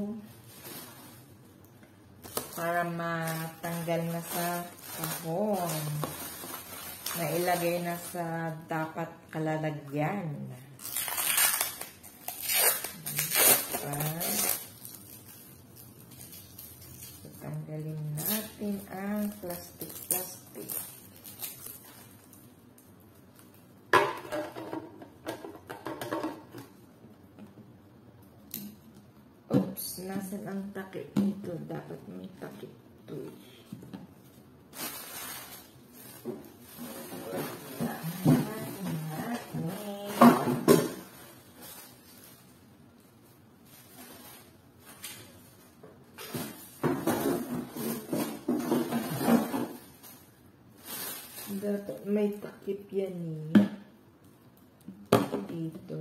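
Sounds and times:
rustling and knocking of kitchen items: 0:00.0 - 0:09.0, 0:13.7 - 0:27.8, 0:33.2 - 0:52.7, 0:53.4 - 0:54.0, 0:54.8 - 0:55.9.

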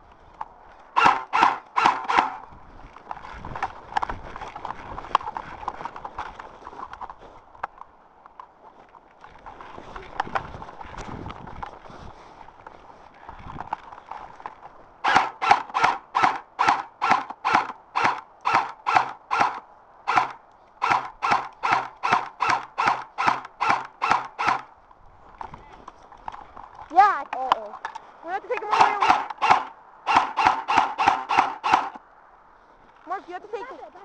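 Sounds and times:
rustling and shuffling: 0:02.4 - 0:15.0, 0:24.7 - 0:29.0, 0:32.4 - 0:34.0
footsteps crunching through snow: 0:08.6 - 0:15.0.

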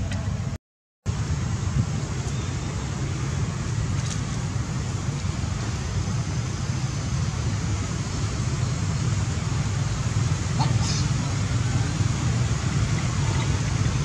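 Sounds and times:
outdoor background hiss: 0:00.0 - 0:14.0
steady low rumble: 0:00.0 - 0:14.0.

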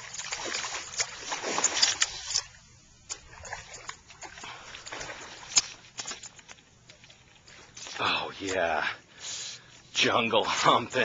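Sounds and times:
fish splashing at surface: 0:00.0 - 0:02.5.

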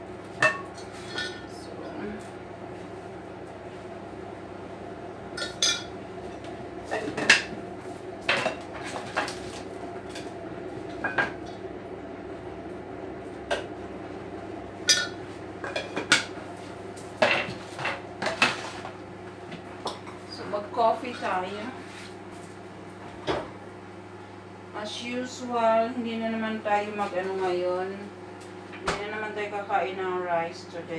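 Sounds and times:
mugs and dishes clinking: 0:05.4 - 0:05.9, 0:14.9 - 0:16.3.

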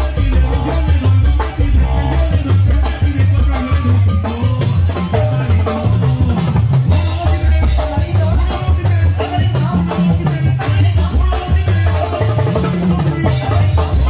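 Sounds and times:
drum kit beat: 0:00.0 - 0:14.0
live band playing cumbia: 0:00.0 - 0:14.0.

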